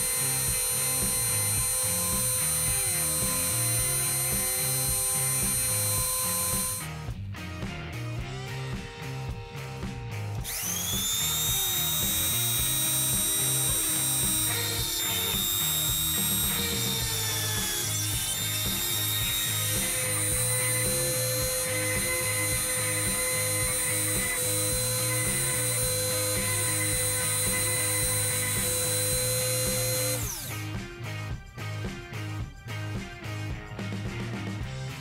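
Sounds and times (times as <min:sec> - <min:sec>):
rotary engraver grinding steel: 0:00.0 - 0:06.9, 0:10.4 - 0:30.7.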